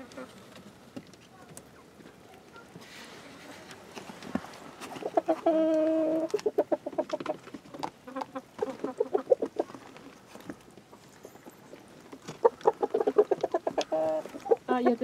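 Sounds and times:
hens clucking: 0:00.0 - 0:15.0
hen drawn-out call: 0:12.4 - 0:15.0.

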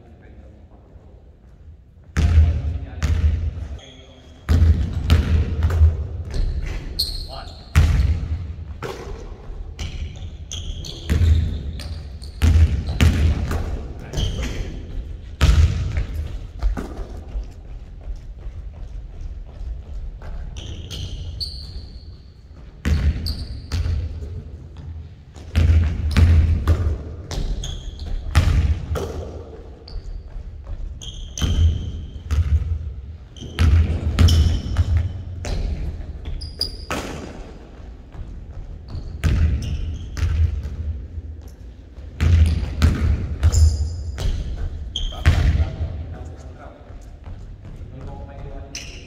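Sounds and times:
sneaker squeaks: 0:03.6 - 0:05.0, 0:06.3 - 0:15.2, 0:19.9 - 0:24.4, 0:27.3 - 0:37.6, 0:38.2 - 0:40.8, 0:41.4 - 0:49.0
basketball bouncing on hardwood: 0:38.1 - 0:40.9, 0:42.2 - 0:45.6.

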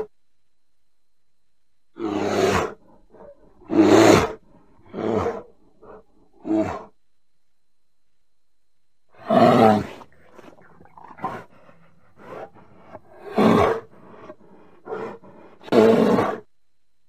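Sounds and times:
bear calls: 0:02.0 - 0:07.0.

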